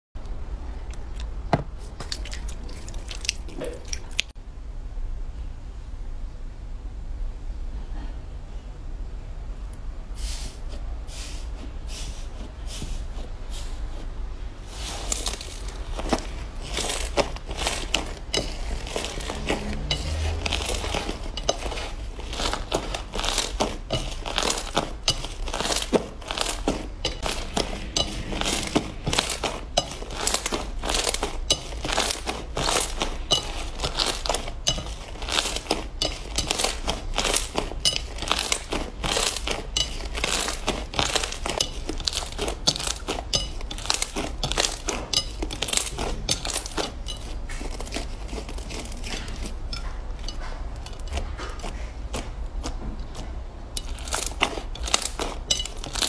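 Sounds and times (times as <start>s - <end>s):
slime crackling and popping: 14.7s - 56.0s.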